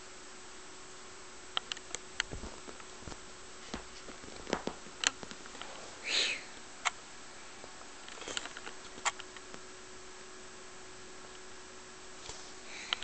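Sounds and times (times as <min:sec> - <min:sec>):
paws tapping and scratching upholstery: 0:02.2 - 0:05.6.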